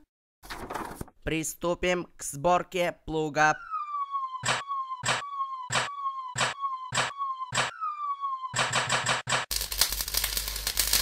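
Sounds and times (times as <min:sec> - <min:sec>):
falling electronic tone: 0:03.5 - 0:09.2.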